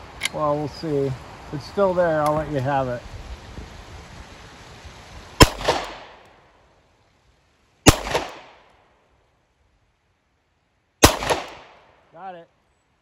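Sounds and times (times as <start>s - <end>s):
pistol shots: 5.4s - 6.1s, 7.9s - 8.6s, 11.0s - 11.8s
gunshot echo: 7.9s - 8.6s, 11.0s - 11.9s.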